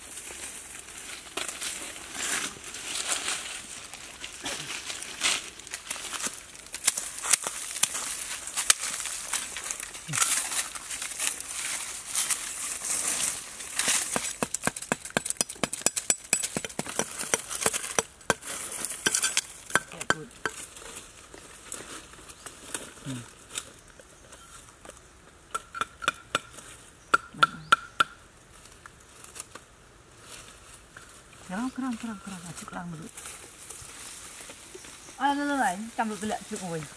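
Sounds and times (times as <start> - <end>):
knife scraping ground and rope: 0.0 - 24.9
dry leaves crackling: 0.0 - 25.1, 28.2 - 36.9.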